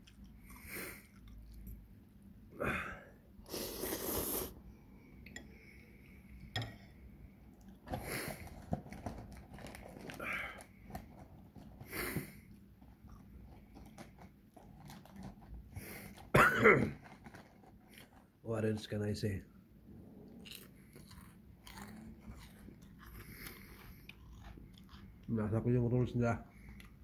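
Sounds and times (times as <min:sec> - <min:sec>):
person chewing and crunching food: 0:00.0 - 0:01.9, 0:07.5 - 0:18.4, 0:20.2 - 0:25.6, 0:26.5 - 0:27.0.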